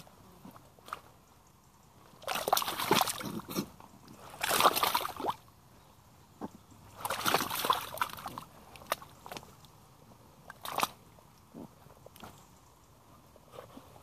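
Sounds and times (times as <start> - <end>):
boots sloshing through mud: 2.1 - 3.6, 4.2 - 5.4, 6.9 - 9.6, 10.5 - 11.0.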